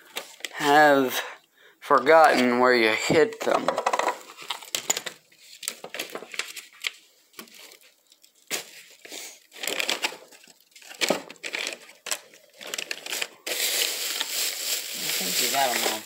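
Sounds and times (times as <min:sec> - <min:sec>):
small objects clicking and knocking: 0:03.3 - 0:06.5
plastic bags crinkling: 0:03.8 - 0:16.0.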